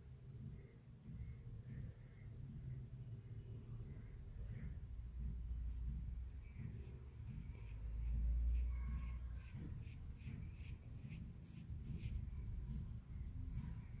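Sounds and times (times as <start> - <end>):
fingers rubbing stuffing: 5.6 - 12.9.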